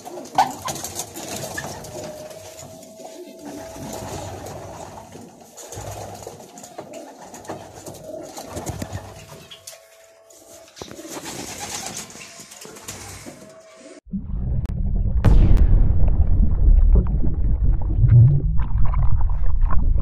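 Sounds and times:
pigeons cooing: 0:00.0 - 0:13.5.

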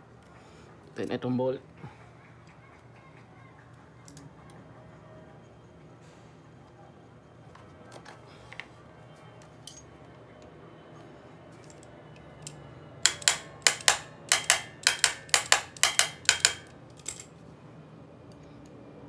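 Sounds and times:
ringing metallic wrench clicks: 0:12.4 - 0:17.3.

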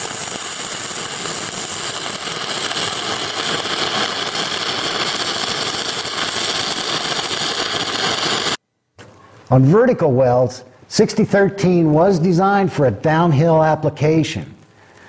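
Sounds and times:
welding arc crackling: 0:00.0 - 0:09.6.

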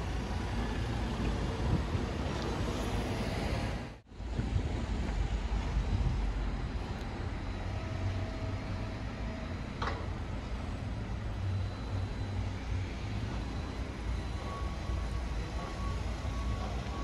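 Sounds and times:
traffic rumble: 0:00.0 - 0:17.0
vehicle reversing beeper: 0:07.2 - 0:17.0.

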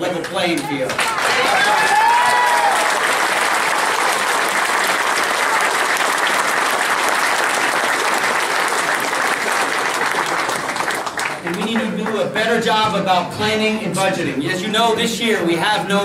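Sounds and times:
crowd applauding: 0:00.0 - 0:12.4.

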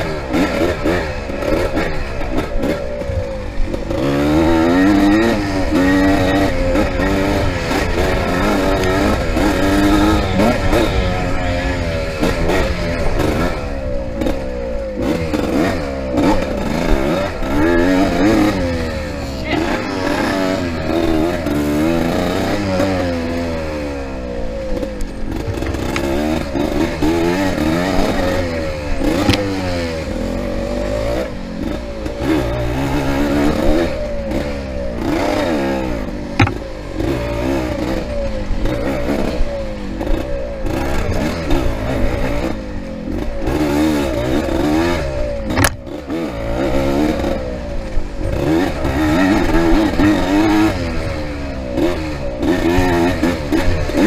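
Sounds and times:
motorcycle engine revving: 0:00.0 - 0:54.0
sharp knocks and clatters: 0:25.3 - 0:26.4, 0:36.4 - 0:36.7, 0:45.5 - 0:45.8.

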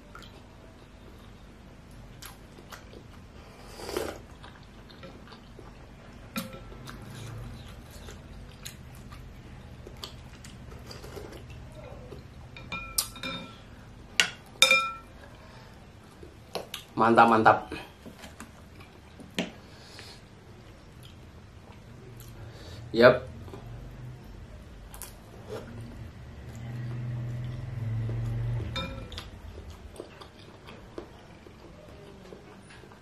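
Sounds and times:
chewing: 0:02.2 - 0:12.4, 0:18.1 - 0:19.4, 0:24.9 - 0:33.0
cutlery clinking on dishware: 0:12.6 - 0:13.6, 0:14.2 - 0:15.1, 0:28.7 - 0:29.2.

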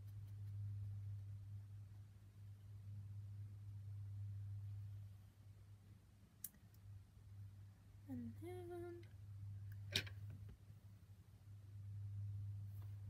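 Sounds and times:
faint low hum: 0:00.0 - 0:13.0
hummed vocal note: 0:08.1 - 0:09.1.

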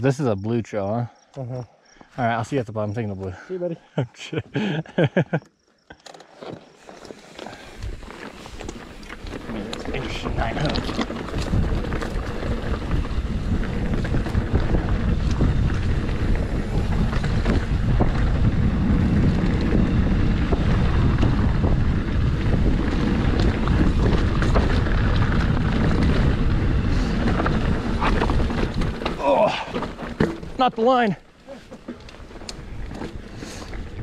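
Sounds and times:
bike tyres rolling on rocky trail: 0:04.5 - 0:34.0
bike clicks and rattles: 0:05.2 - 0:34.0
wind buffeting microphone: 0:07.5 - 0:31.3, 0:32.0 - 0:34.0.

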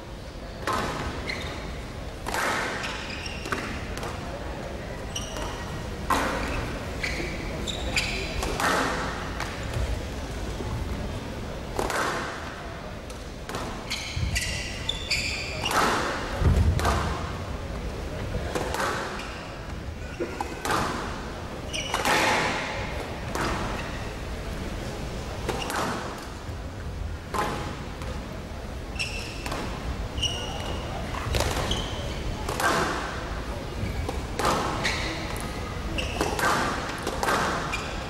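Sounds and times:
shoes squeaking on court floor: 0:00.7 - 0:04.2, 0:05.0 - 0:09.9, 0:13.5 - 0:17.2, 0:18.5 - 0:24.3, 0:28.9 - 0:38.0.

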